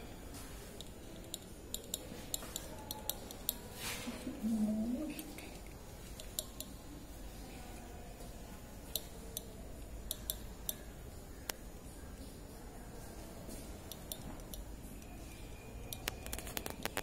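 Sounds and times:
faint low background hum: 0.0s - 17.0s
light sharp clicks and taps: 0.8s - 3.7s, 5.2s - 6.8s, 8.9s - 10.8s, 13.5s - 15.1s.

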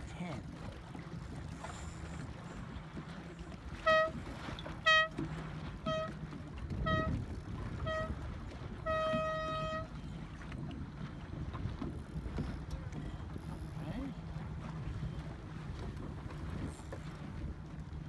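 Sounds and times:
horn blasts: 3.7s - 10.4s.

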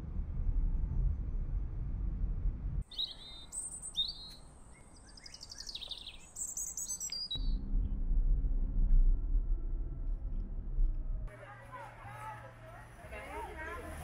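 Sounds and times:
birds chirping and singing: 2.8s - 7.6s
car engine and road noise: 7.4s - 14.0s.

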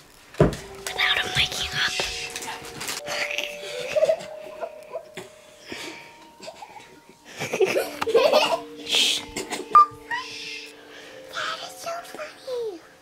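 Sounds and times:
children giggling: 3.3s - 5.3s, 6.2s - 10.3s.

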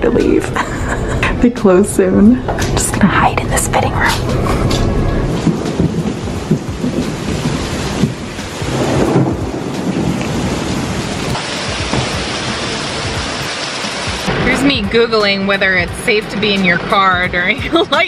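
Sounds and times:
thunder rumbling: 0.0s - 18.0s
heavy rain on pavement and cars: 3.8s - 18.0s.

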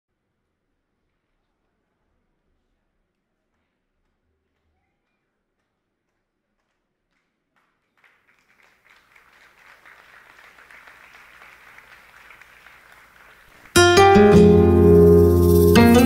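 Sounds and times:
audience applause: 8.0s - 14.0s
recorded music with plucked strings: 13.8s - 16.0s.

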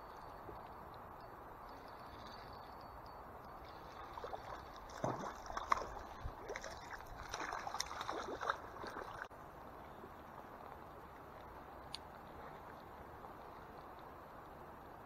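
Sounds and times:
fish thrashing and splashing: 4.2s - 9.3s.

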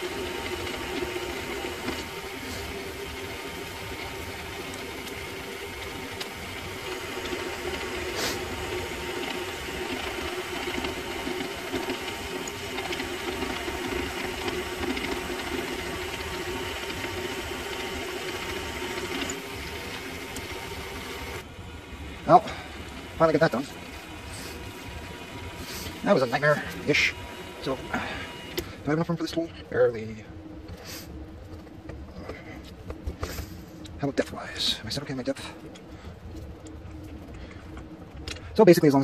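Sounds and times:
drill cutting metal: 0.0s - 21.5s, 22.2s - 29.0s
lathe motor hum: 0.0s - 39.0s.

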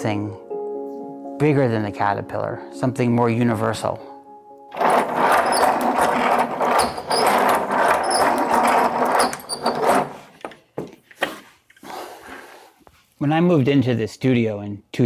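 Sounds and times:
wooden knocks: 4.8s - 11.0s
wooden mechanism clattering: 4.8s - 11.1s.

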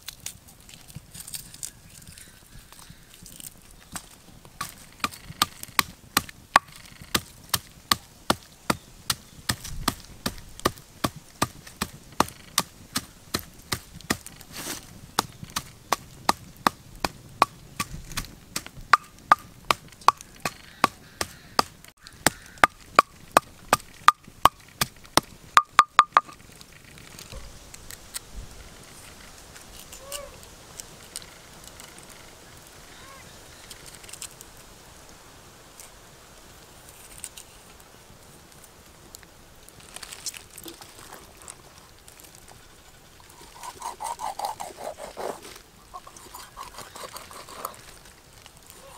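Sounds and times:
pestle pounding in clay mortar: 15.2s - 26.3s.

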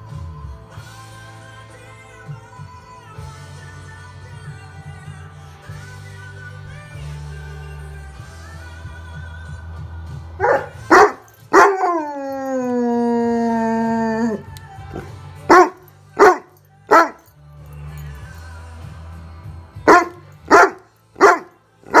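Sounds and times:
quiet pop music: 0.0s - 22.0s
dog barking: 10.4s - 12.0s, 15.0s - 17.3s, 19.9s - 22.0s
dog howling: 10.4s - 17.2s.

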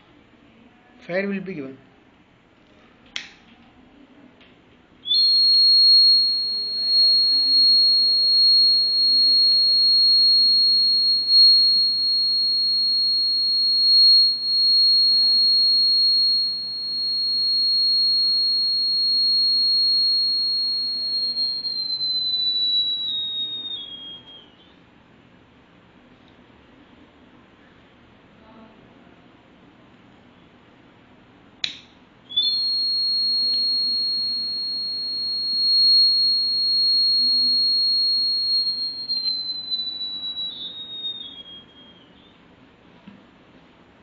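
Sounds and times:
high-pitched alarm buzzer tone: 5.1s - 24.3s, 32.4s - 41.4s.

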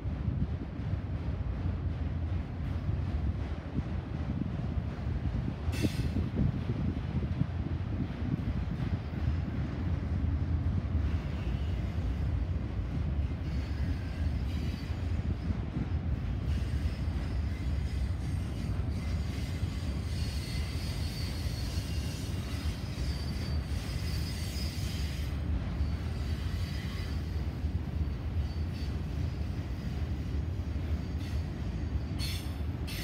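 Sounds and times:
freight cars rumbling on rails: 0.0s - 33.0s
wheel squeal: 16.5s - 30.3s.

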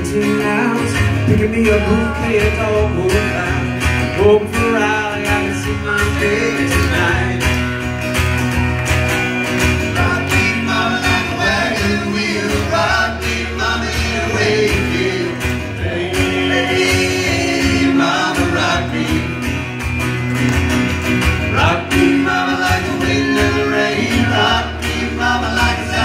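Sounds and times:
men singing in harmony: 0.0s - 7.6s, 9.8s - 19.7s, 21.5s - 26.0s
acoustic guitar: 0.0s - 26.0s.

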